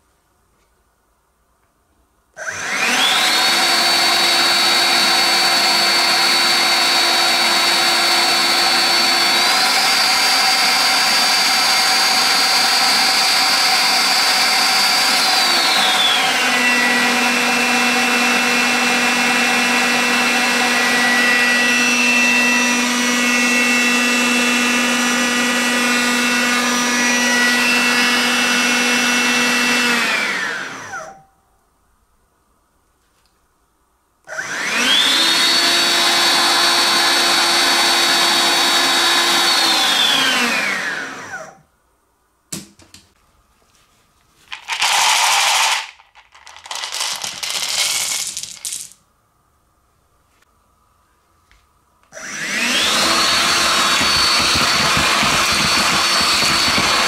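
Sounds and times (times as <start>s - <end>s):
cordless vacuum motor whining: 2.4s - 31.2s, 34.3s - 41.6s, 52.1s - 57.0s.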